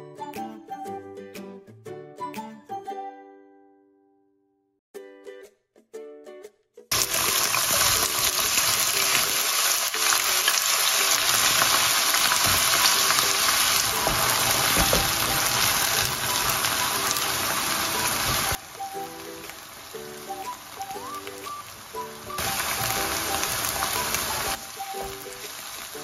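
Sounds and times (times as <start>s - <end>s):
onions sizzling in hot oil: 6.9s - 26.0s.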